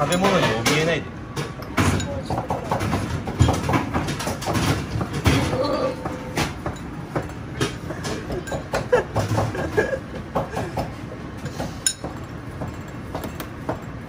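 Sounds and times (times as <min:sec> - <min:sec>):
kitchen clicks and clatter: 0:00.0 - 0:05.6.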